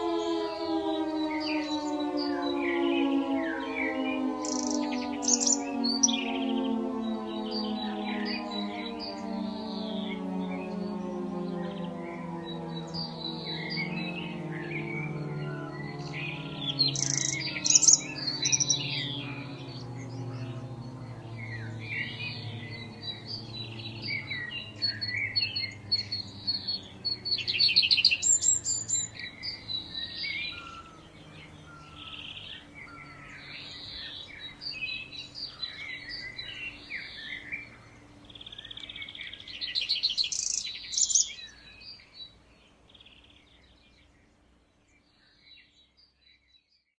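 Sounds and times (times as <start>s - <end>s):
siren winding down: 0.0s - 34.8s
birds chirping and trilling: 0.0s - 46.9s.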